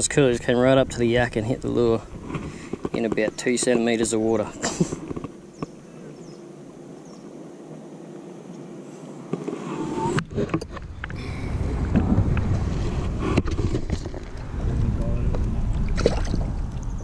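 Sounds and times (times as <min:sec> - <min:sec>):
wind rumble on microphone: 0:00.0 - 0:03.2, 0:09.8 - 0:17.0
faint outdoor hiss: 0:00.0 - 0:17.0.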